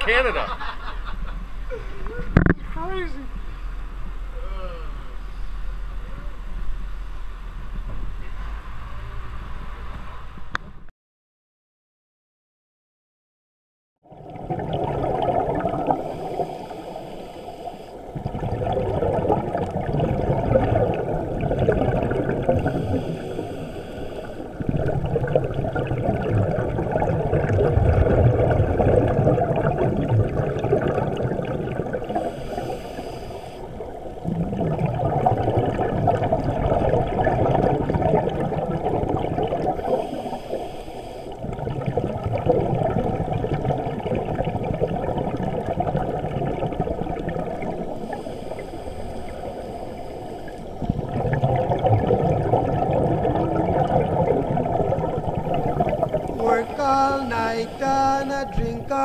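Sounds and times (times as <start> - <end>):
faint high hiss: 1.6 - 10.4, 55.6 - 59.0
underwater diver bubbles: 14.0 - 59.0.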